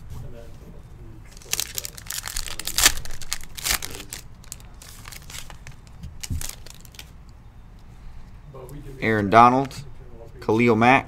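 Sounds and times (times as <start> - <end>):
cards rustling: 1.3 - 7.2
plastic wrapper crinkling: 1.3 - 7.2.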